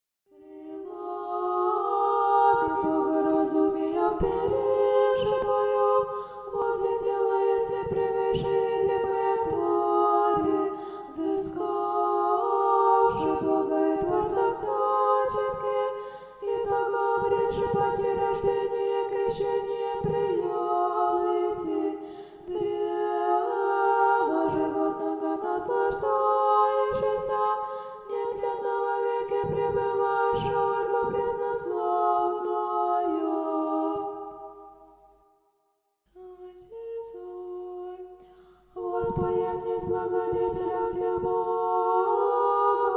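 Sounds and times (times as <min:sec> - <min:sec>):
choir singing a chant: 0:00.3 - 0:35.0, 0:36.2 - 0:42.9.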